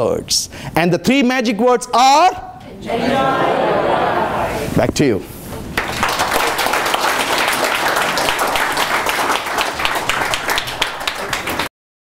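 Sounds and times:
audience applauding: 5.8s - 11.7s.

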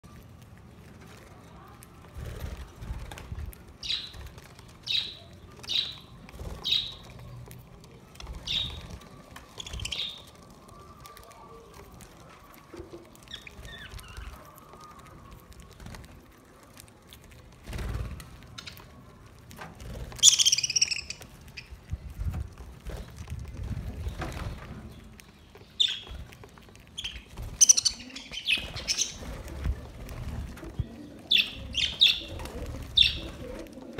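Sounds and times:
budgerigars chirping: 20.2s - 21.2s, 33.0s - 33.4s.

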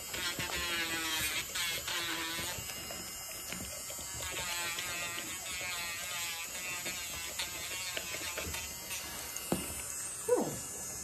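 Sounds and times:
rotary tool grinding nails: 0.0s - 11.0s.

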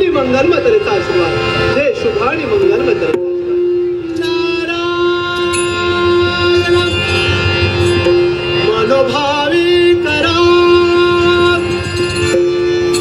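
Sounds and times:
steady drone: 0.0s - 13.0s
person singing ornamented melody: 3.6s - 12.2s.

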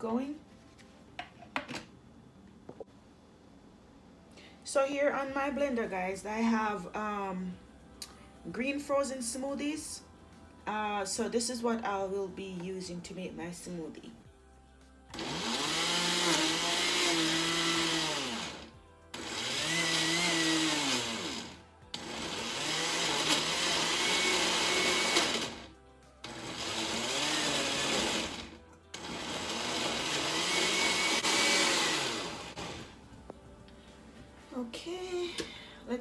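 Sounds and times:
blender motor chopping: 15.1s - 33.0s.

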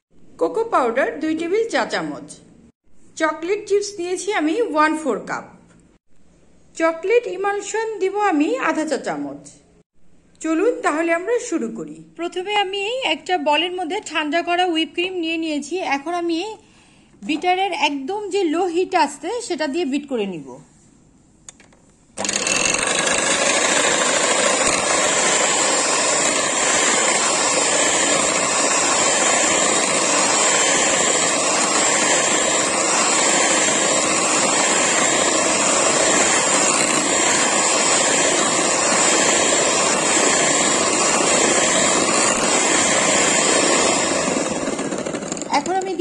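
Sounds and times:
beaters whisking cream: 22.2s - 46.0s
electric hand mixer running: 22.2s - 46.0s.

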